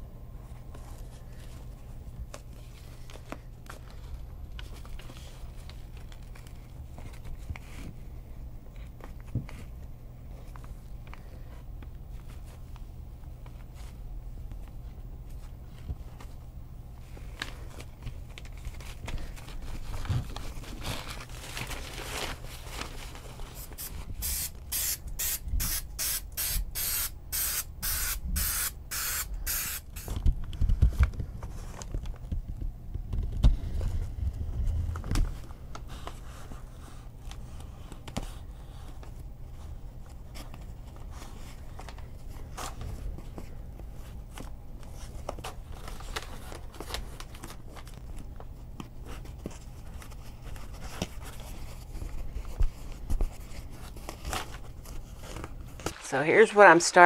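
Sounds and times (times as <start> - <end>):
fabric and foam rustling: 0.4 - 24.2, 30.3 - 57.0
aerosol spray can hissing: 24.2 - 30.1.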